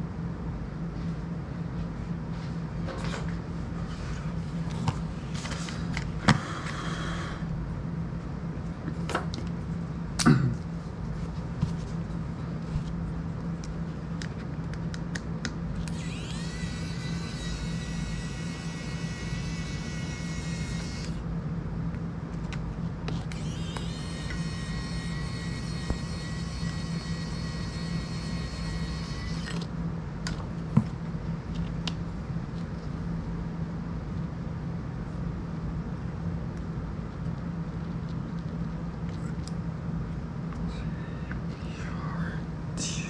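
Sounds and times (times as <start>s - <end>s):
steady low hum: 0.0s - 43.0s
drone motors whining: 15.8s - 21.2s, 23.2s - 29.7s.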